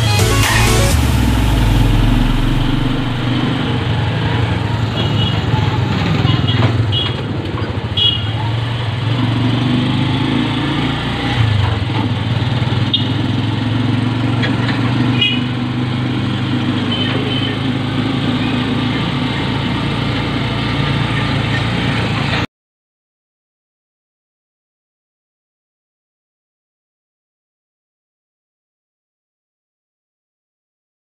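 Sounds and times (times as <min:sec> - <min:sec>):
small motorcycle engine running: 0:00.9 - 0:22.4.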